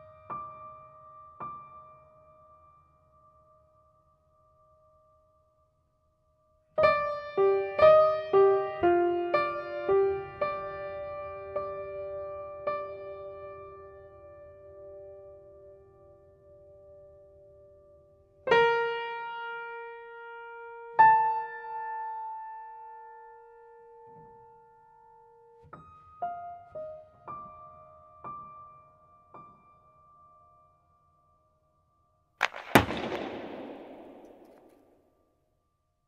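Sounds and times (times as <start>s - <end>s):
loud sharp bang: 32.4s - 34.9s.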